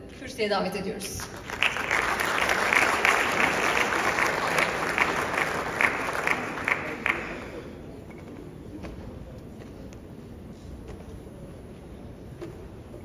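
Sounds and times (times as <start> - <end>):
single claps: 1.2 - 7.5
audience applauding: 1.2 - 7.8.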